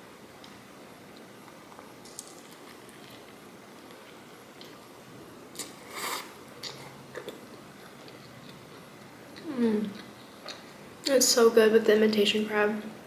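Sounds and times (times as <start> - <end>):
faint steady hiss: 0.0 - 13.0
chewing with wet mouth clicks: 5.6 - 10.7.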